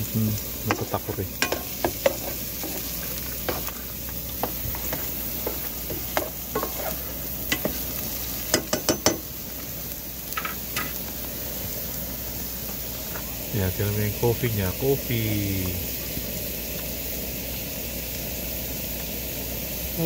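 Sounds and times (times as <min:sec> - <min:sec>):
food sizzling in a pan: 0:00.0 - 0:20.0
utensil scraping pan: 0:00.7 - 0:07.9.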